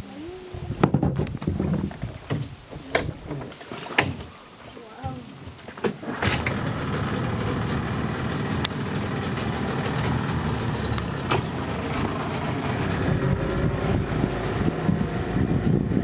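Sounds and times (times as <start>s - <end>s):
boat engine running: 6.1s - 16.0s.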